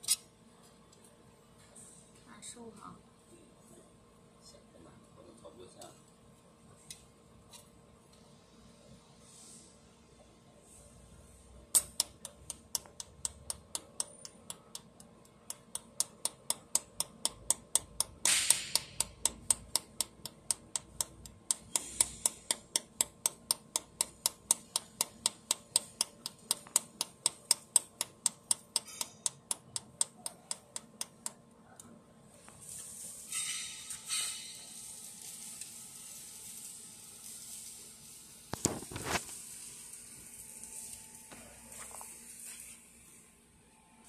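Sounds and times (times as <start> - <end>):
welding torch clicks: 11.7 - 31.4.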